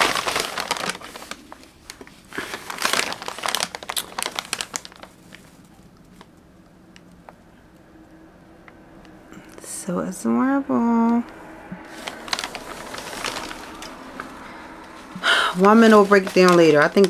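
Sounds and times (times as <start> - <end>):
wrapping crinkling: 0.0 - 6.5, 11.8 - 17.0.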